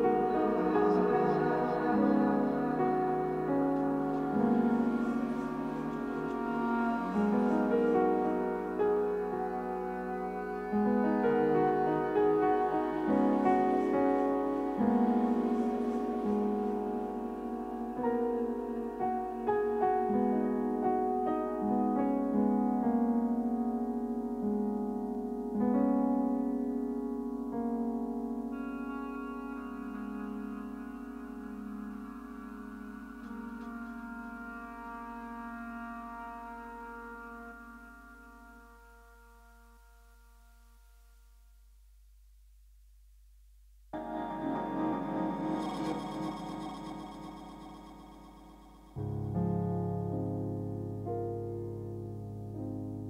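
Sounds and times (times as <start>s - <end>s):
slow piano chords: 0.0s - 41.6s, 44.0s - 53.0s.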